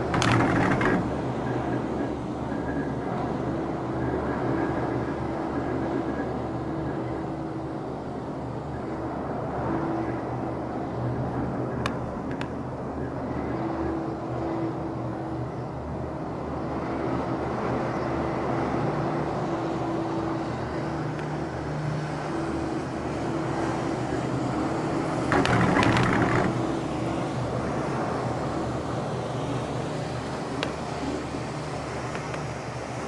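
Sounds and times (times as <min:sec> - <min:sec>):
rattling clatter over rollers: 0:00.0 - 0:01.8, 0:25.2 - 0:27.0
gondola cabin rumble and hum: 0:00.0 - 0:33.0.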